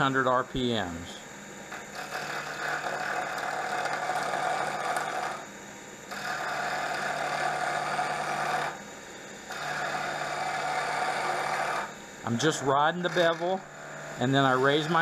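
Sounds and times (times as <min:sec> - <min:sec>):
lathe humming: 0:01.2 - 0:15.0.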